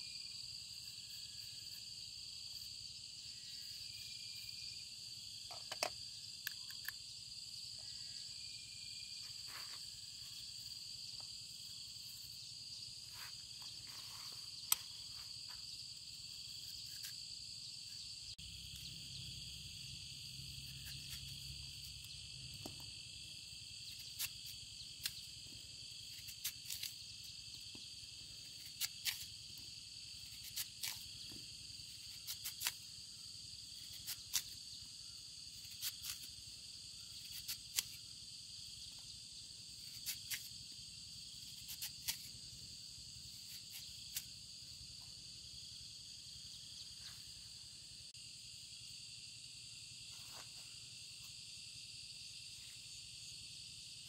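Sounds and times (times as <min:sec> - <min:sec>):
insects trilling: 0:00.0 - 0:54.0
knife cutting fruit: 0:16.3 - 0:17.4, 0:20.6 - 0:23.0, 0:23.9 - 0:25.4, 0:26.0 - 0:33.0, 0:33.7 - 0:34.6, 0:35.6 - 0:36.4, 0:37.1 - 0:38.0, 0:39.8 - 0:40.6, 0:41.4 - 0:42.4, 0:43.4 - 0:44.4.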